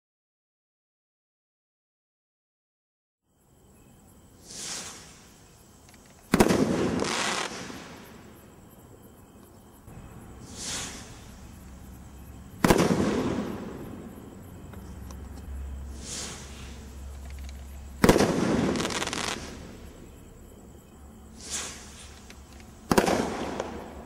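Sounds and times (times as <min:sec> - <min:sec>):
firework crackle: 0:04.4 - 0:08.4, 0:10.2 - 0:11.9, 0:12.6 - 0:14.1, 0:15.9 - 0:19.9, 0:21.3 - 0:24.0
firework rising hiss: 0:04.4 - 0:08.4, 0:09.9 - 0:14.2, 0:15.8 - 0:20.0, 0:21.2 - 0:24.0
firework bang: 0:06.3 - 0:08.2, 0:09.9 - 0:11.4, 0:12.6 - 0:14.2, 0:18.0 - 0:19.8, 0:22.9 - 0:24.0.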